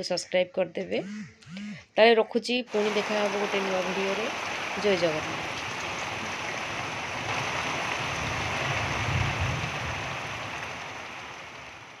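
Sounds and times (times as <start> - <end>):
heavy rain pouring: 2.7 - 12.0
wind rumble on microphone: 5.4 - 11.9.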